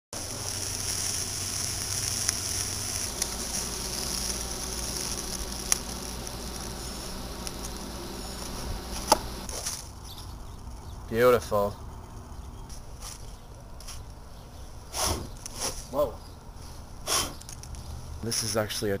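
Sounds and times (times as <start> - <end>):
eggs sizzling in a skillet: 0.2 - 9.5
sharp pops of frying: 0.2 - 9.5.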